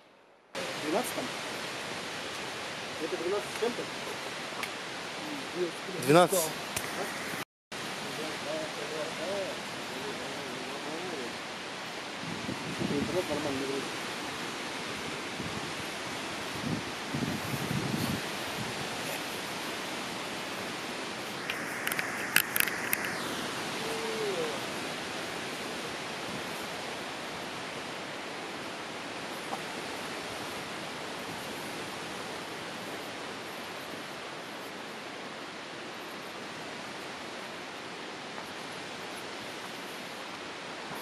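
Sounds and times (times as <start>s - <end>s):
rushing outdoor ambience: 0.0s - 41.0s.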